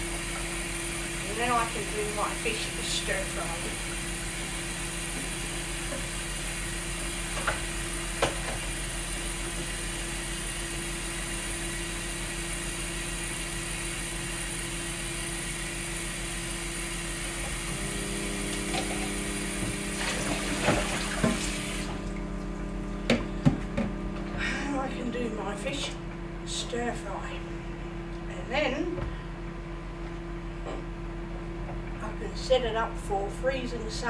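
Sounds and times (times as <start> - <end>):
tap running into sink: 7.3 - 8.7, 18.6 - 21.9.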